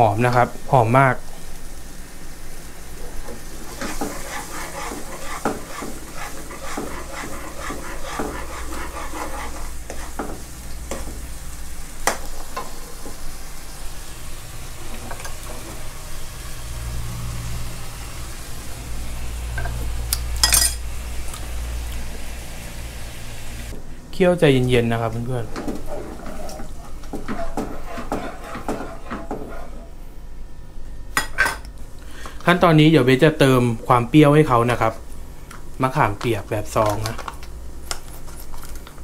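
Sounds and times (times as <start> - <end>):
sauce sizzling: 0.5 - 23.8
metal ladle scraping wok: 3.7 - 10.4, 25.5 - 29.9
sharp metallic clink: 20.4 - 20.8.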